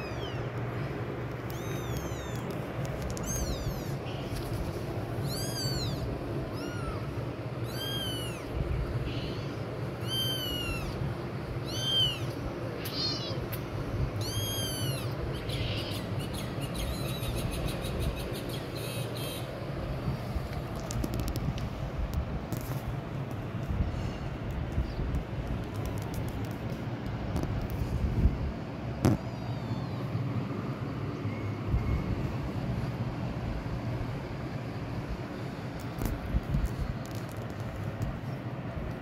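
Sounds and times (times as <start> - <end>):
kitten mewing: 3.2 - 4.3, 5.2 - 8.5, 9.1 - 11.0, 11.6 - 13.4, 14.2 - 16.2.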